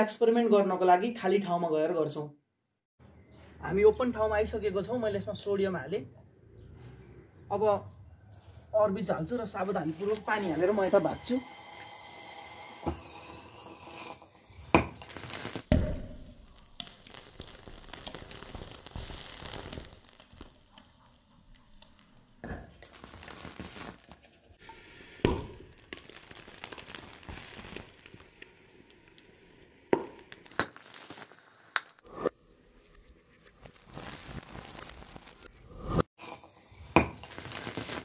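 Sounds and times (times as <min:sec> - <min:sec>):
sodium fizzing and crackling in water: 0:10.0 - 0:15.7, 0:16.4 - 0:36.0, 0:36.6 - 0:38.0.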